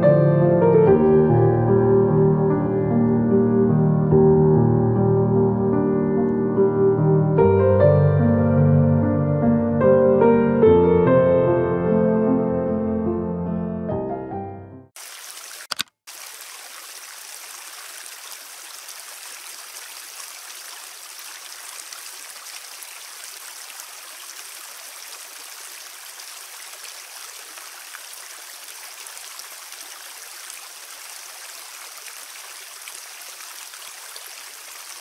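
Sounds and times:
stream rushing over rocks: 15.0s - 35.0s.

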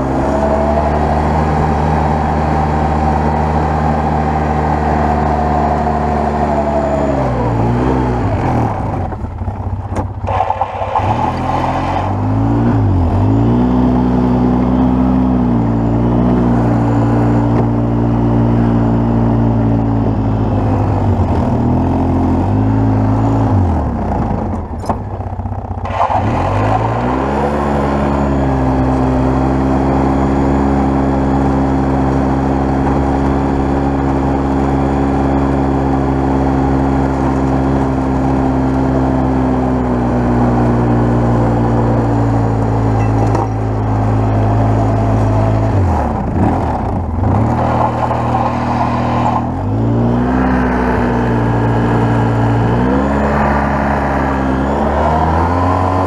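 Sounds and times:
atv engine under load: 12.2s - 56.0s.

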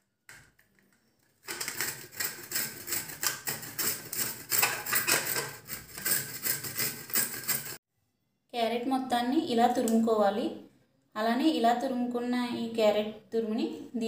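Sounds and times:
carrot rasping on metal grater: 1.4s - 7.8s.

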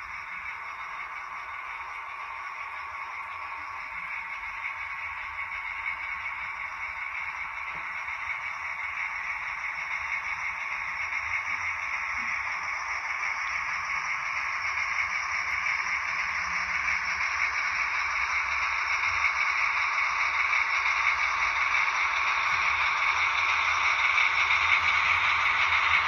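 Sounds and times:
model train wheels whirring: 0.0s - 26.0s.

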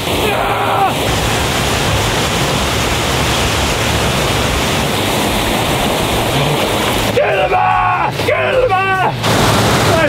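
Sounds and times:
water rushing over rocks: 0.0s - 10.0s.

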